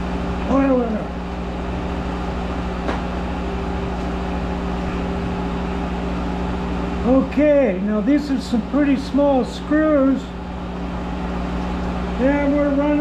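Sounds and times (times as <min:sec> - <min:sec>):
lathe humming: 0:00.0 - 0:13.0.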